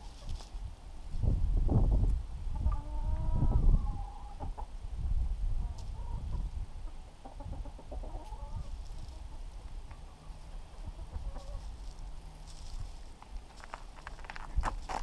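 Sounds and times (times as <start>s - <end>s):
hen clucking: 2.5s - 4.8s, 5.6s - 12.1s.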